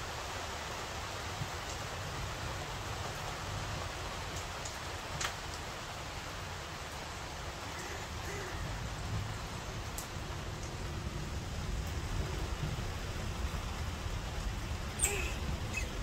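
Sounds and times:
steady rain hiss: 0:00.0 - 0:16.0.

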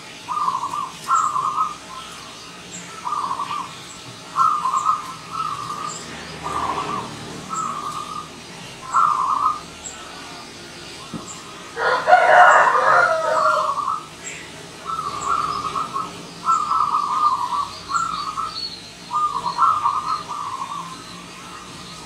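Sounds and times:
dove trilled cooing: 0:00.2 - 0:10.4, 0:11.1 - 0:22.0.

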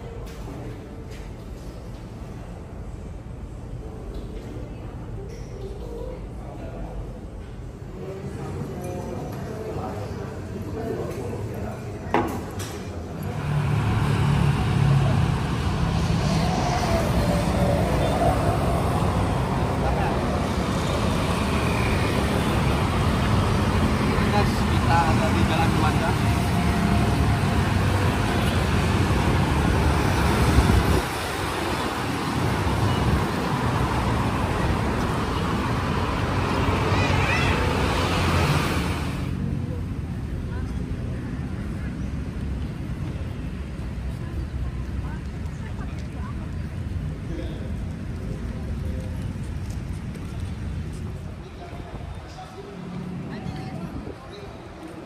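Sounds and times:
city street traffic: 0:00.0 - 0:55.0
motorbikes and cars passing: 0:12.8 - 0:55.0
vehicle engine running low: 0:13.2 - 0:54.1.

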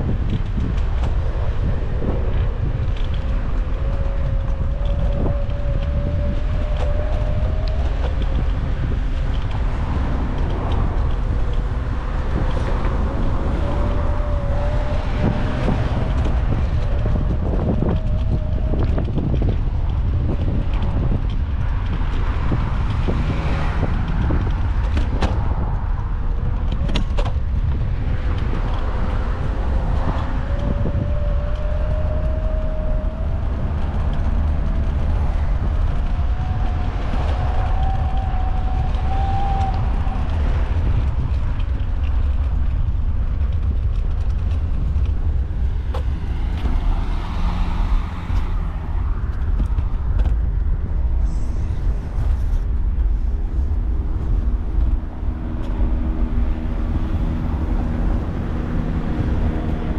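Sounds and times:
small wheels rumbling: 0:00.0 - 0:59.9
wind buffeting on microphone: 0:00.0 - 0:59.9.

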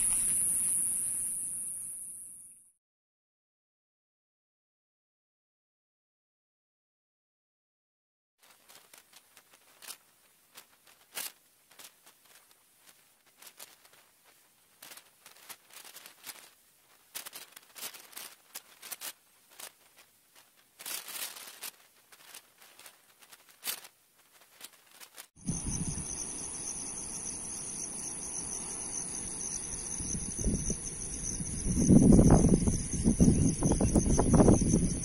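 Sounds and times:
faint hiss: 0:00.0 - 0:02.6, 0:08.4 - 0:35.0
fire snaps and pops: 0:08.4 - 0:25.6
campfire crackling: 0:08.4 - 0:33.0.

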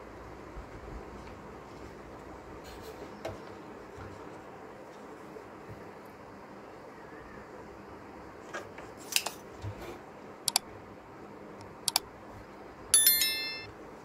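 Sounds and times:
notification bell chime: 0:13.0 - 0:13.7.

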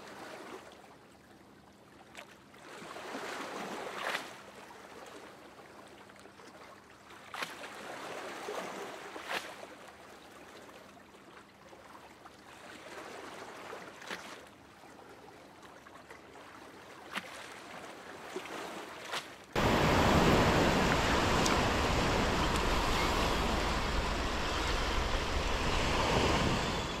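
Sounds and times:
surf washing onto beach: 0:19.6 - 0:27.0.

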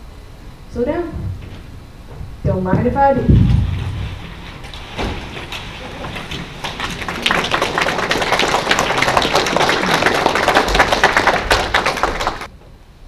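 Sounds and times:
audience applauding: 0:05.2 - 0:12.5.

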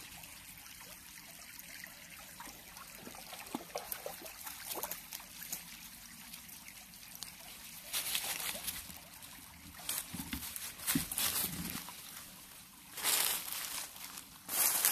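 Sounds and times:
creek trickling over stones: 0:00.0 - 0:14.9.

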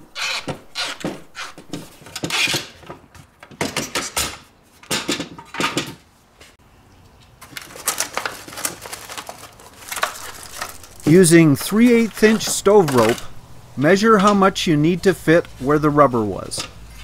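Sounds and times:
plastic package crinkling: 0:07.4 - 0:13.3.

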